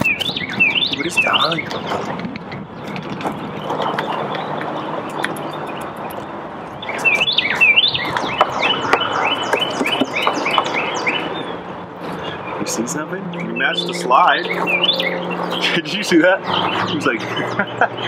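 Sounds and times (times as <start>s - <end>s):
wind noise on microphone: 0.0s - 13.7s
songbird chirping: 0.0s - 18.0s.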